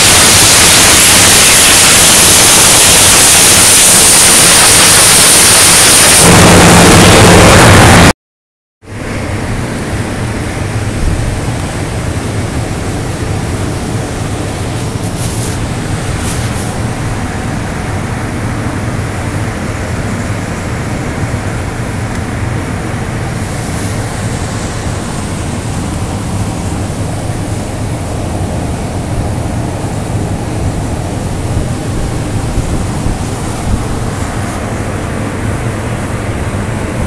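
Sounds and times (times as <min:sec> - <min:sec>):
cutting torch hissing through metal: 0:00.0 - 0:08.1.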